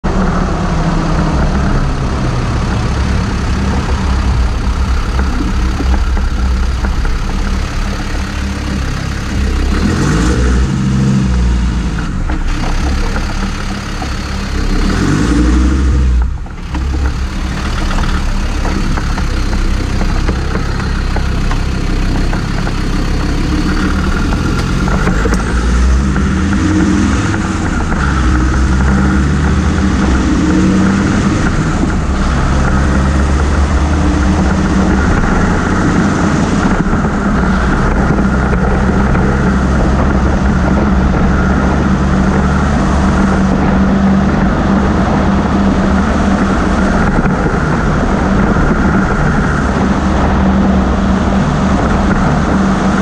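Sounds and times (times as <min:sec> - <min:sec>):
car engine revving: 0:00.0 - 0:53.0
road and tyre noise: 0:00.0 - 0:53.0.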